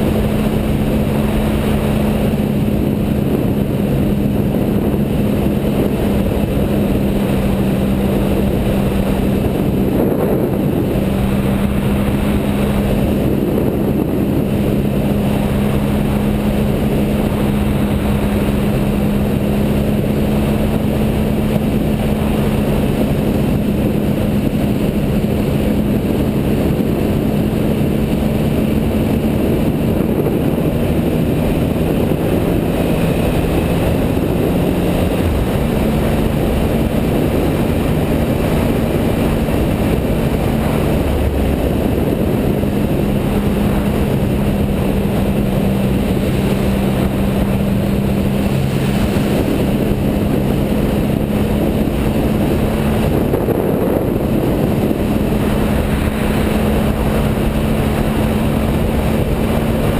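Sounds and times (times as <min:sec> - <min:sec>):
motorcycle engine cruising: 0:00.0 - 0:59.9
wind and road noise: 0:00.0 - 0:59.9.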